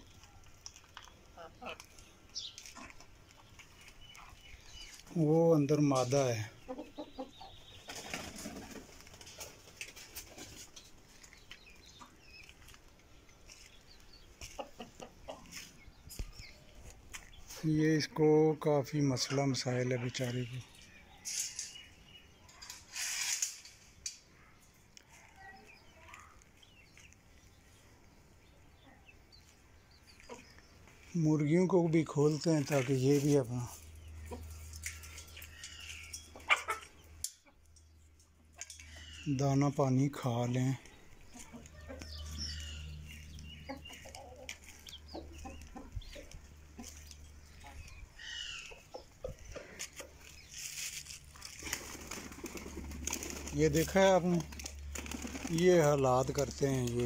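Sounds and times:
chickens clucking: 0.0 - 23.0, 23.8 - 57.0
pigeons rustling: 6.6 - 17.7, 40.2 - 57.0
faint bird calls: 40.8 - 51.6.

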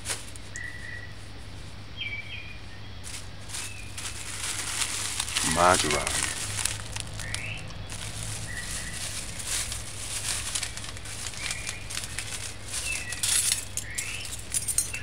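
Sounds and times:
steady low hum: 0.0 - 15.0
plastic packet crinkling: 3.1 - 15.0
bird chirps: 7.2 - 9.0.

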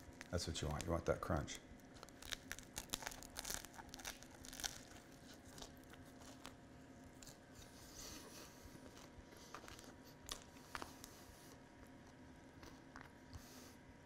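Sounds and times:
bread crust crunching: 1.8 - 7.8, 8.5 - 13.3
quiet chewing: 1.8 - 13.8.

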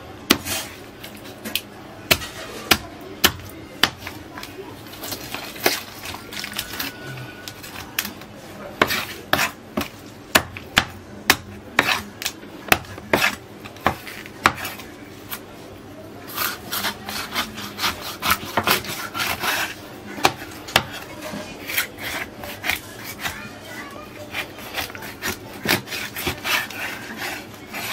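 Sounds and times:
knife chopping on cutting board: 0.3 - 0.6, 1.5 - 4.2, 8.8 - 14.8, 16.3 - 21.0, 24.3 - 27.9
knife scraping fish: 0.3 - 1.3, 8.8 - 10.0, 11.8 - 14.8, 16.3 - 27.9.

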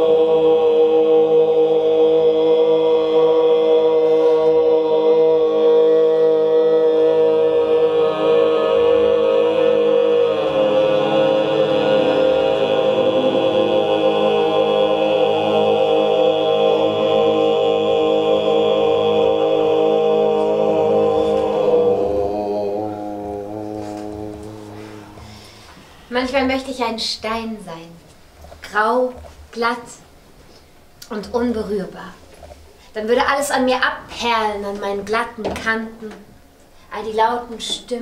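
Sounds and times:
group singing held drone chord: 0.0 - 26.1.

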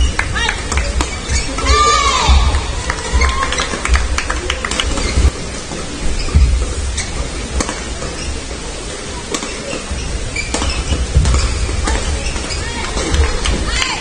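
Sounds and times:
footsteps on court floor: 0.0 - 8.6
rackets hitting shuttlecock: 9.3 - 9.8.

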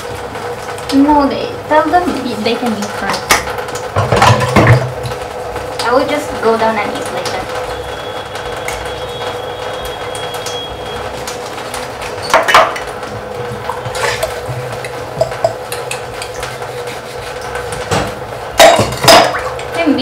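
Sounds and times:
steady background hum: 0.0 - 20.0
dishes clinking in a sink: 3.1 - 4.9, 12.2 - 12.9, 13.6 - 16.5, 17.7 - 19.7.

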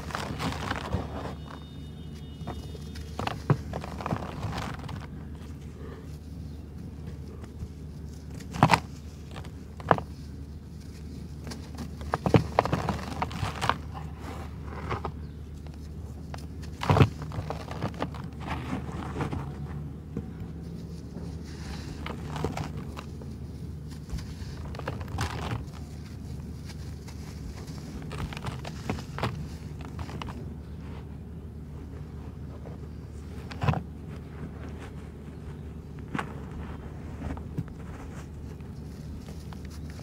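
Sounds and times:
rustling and sifting powder: 0.0 - 1.9, 2.6 - 19.7, 20.5 - 40.0
gritty crunches of chunks breaking: 0.0 - 5.1
faint low hum: 0.0 - 40.0.

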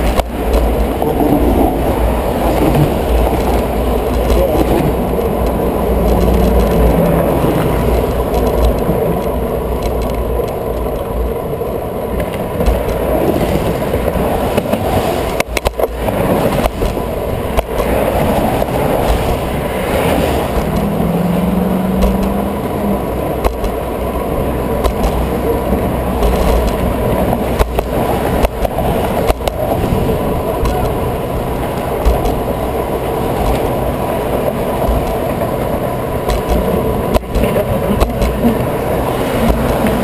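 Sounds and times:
road traffic passing: 0.0 - 40.0
wind buffeting microphone: 0.0 - 40.0
sharp knocks: 21.9 - 22.5, 32.0 - 32.5.

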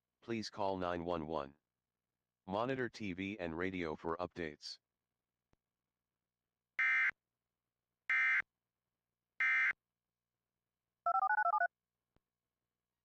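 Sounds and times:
touch-tone beeps: 11.1 - 11.7.

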